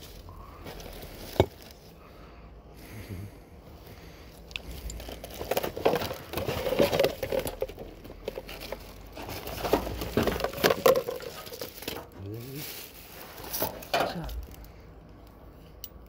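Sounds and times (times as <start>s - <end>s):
rubbish bags rustling and crinkling: 0.0s - 2.4s, 3.7s - 14.9s.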